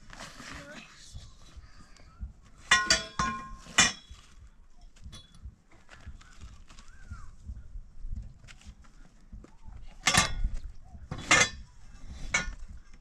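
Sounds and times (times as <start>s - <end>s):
metal bars clanking: 2.6s - 4.3s, 9.9s - 12.7s.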